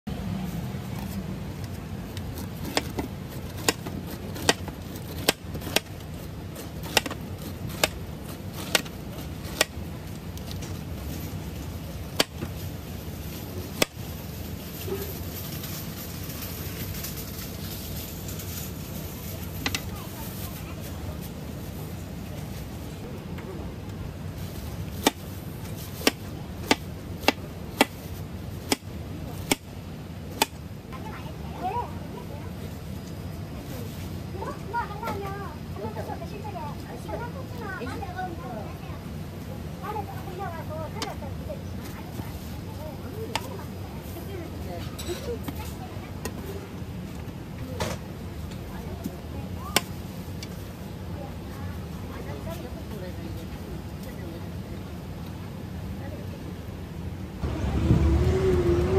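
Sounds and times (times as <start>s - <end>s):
knife cutting pineapple rind: 1.0s - 10.4s.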